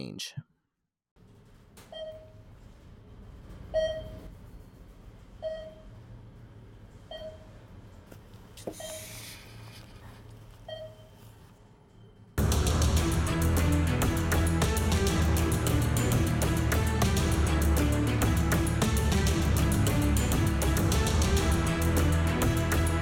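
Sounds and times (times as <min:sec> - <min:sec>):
music: 0:12.4 - 0:23.0.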